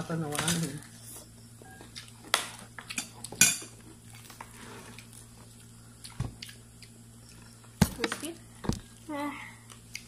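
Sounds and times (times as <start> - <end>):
faint low hum: 0.0 - 10.0
tableware clinking: 3.0 - 3.8.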